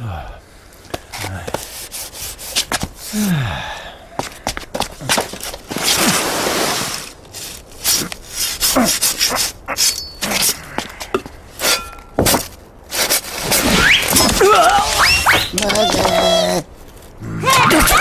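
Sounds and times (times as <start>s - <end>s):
saw rasping into ice: 5.7s - 10.4s.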